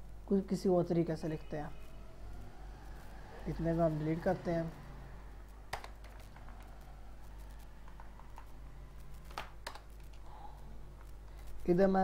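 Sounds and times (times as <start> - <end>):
computer keyboard typing: 5.7 - 10.3.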